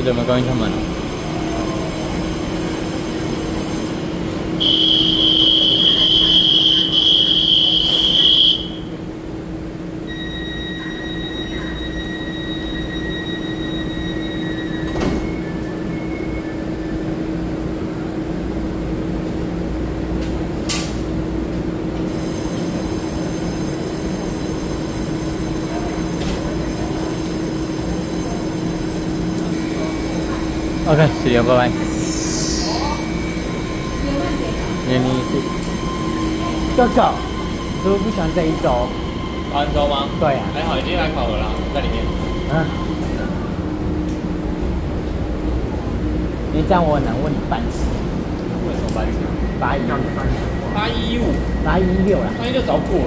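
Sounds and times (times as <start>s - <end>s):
train equipment humming: 0.0s - 53.0s
high door-closing warning tone: 4.6s - 9.0s, 10.0s - 16.7s, 29.8s - 43.2s
two-pitch tone: 31.5s - 41.1s.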